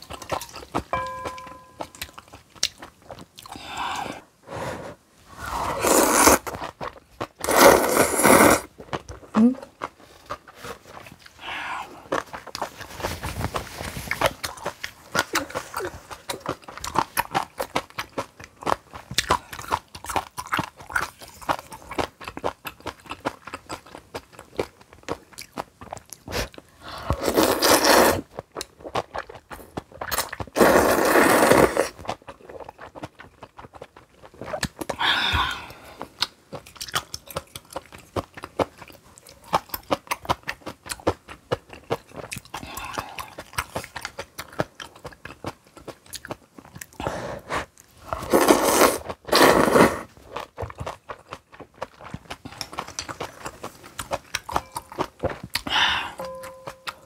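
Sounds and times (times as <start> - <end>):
wet chewing and crunching: 0.0 - 3.6, 5.9 - 57.0
slurping: 3.9 - 6.6, 7.4 - 8.7, 27.1 - 28.3, 47.3 - 50.2.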